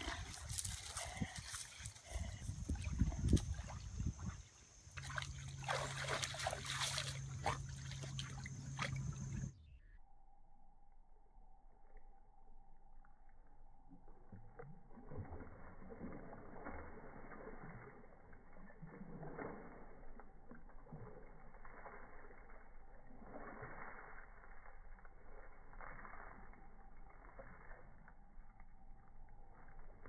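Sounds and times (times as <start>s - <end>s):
wood scraping on dirt: 0.0s - 3.4s
dog splashing in water: 0.0s - 9.5s, 14.4s - 28.2s.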